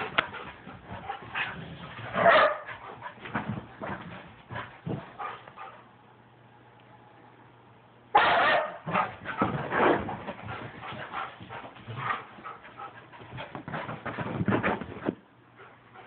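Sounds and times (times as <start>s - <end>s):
dog barking: 2.1s - 2.7s, 8.2s - 9.2s.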